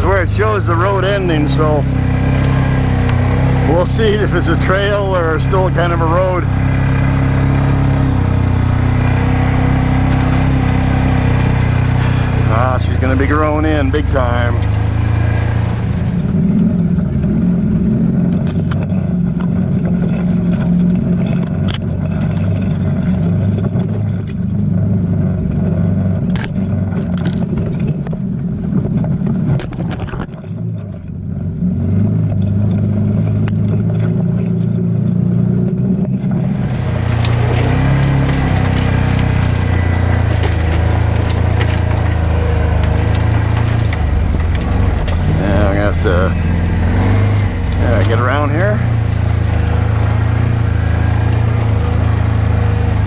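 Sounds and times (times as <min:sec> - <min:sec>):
brush snapping and scraping: 0:00.0 - 0:16.4, 0:36.4 - 0:53.0
off-road vehicle engine running: 0:00.0 - 0:53.0.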